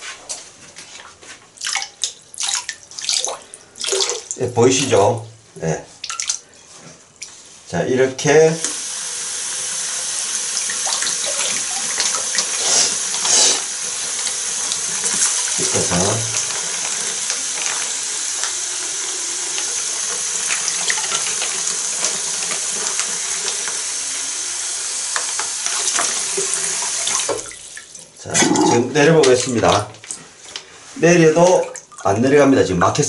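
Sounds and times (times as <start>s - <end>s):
tap running into basin water: 8.6s - 30.6s.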